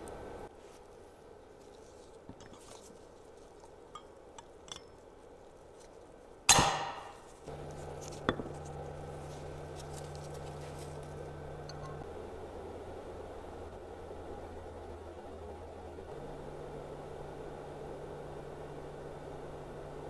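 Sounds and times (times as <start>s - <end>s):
steady low hum: 0.0s - 20.0s
sharp metallic clack: 6.5s - 7.2s.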